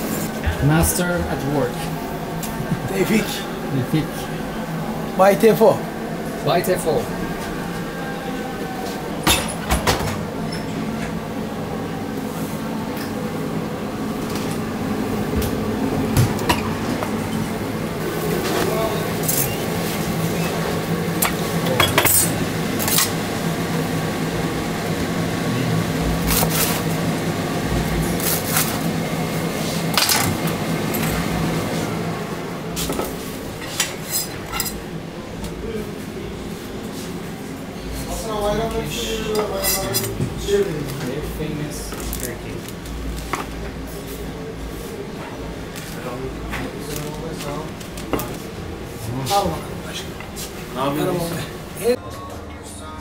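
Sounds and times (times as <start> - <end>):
kitchen machine hum: 0.0 - 53.0
dishes clinking: 21.2 - 23.2.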